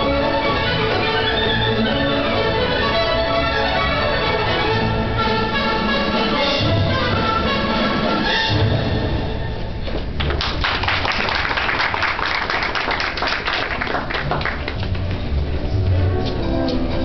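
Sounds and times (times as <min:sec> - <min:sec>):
orchestral music: 0:00.0 - 0:10.2, 0:13.7 - 0:17.0
hands clapping: 0:10.2 - 0:15.3.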